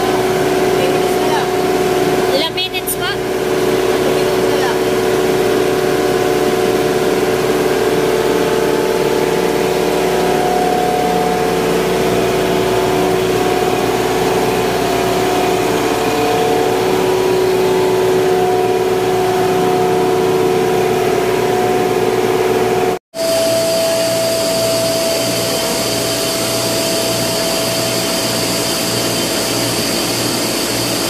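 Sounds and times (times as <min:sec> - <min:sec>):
electric motors humming: 0:00.0 - 0:31.0.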